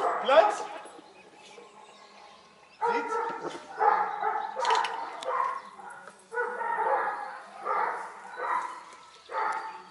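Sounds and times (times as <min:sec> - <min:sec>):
dog barking: 0:00.0 - 0:00.7, 0:02.8 - 0:09.8.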